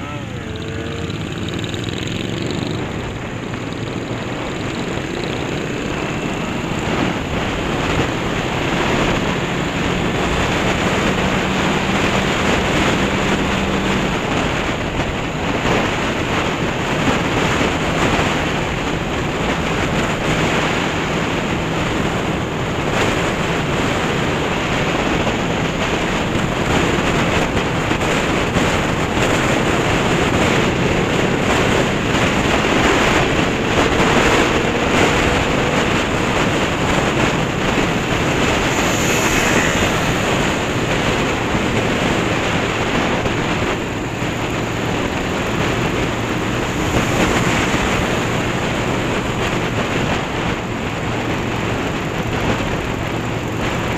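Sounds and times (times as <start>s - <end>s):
motorcycle engine running: 0.0s - 53.9s
wind rushing over microphone: 0.0s - 53.9s.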